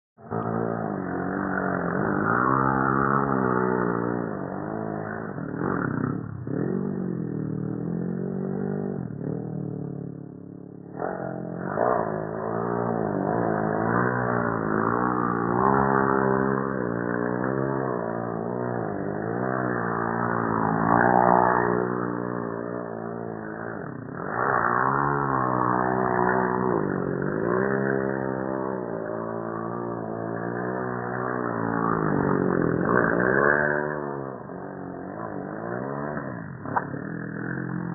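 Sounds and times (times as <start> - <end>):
mini dirt bike engine revving: 0.2 - 37.9.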